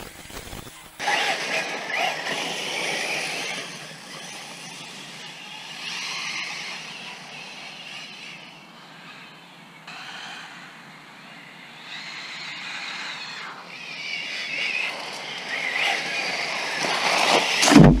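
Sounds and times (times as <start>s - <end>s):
tyre noise: 17.0s - 18.0s
loud thump: 17.6s - 18.0s.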